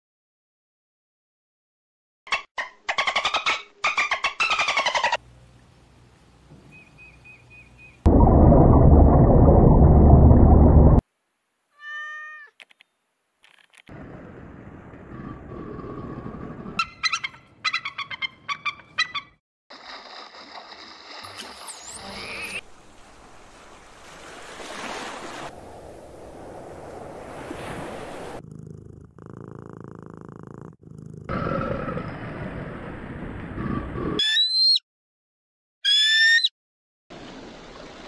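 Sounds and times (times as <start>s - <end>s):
cat meowing: 11.8s - 12.6s
eagle calling: 16.8s - 19.4s, 34.2s - 34.8s, 35.8s - 36.5s
sea noise: 19.7s - 28.7s
high whistling bird calls: 34.2s - 34.8s, 35.8s - 36.5s.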